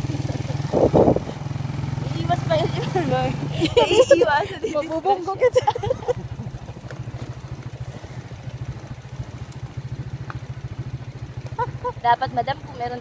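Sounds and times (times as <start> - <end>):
motorcycle engine putter: 6.2 - 12.0.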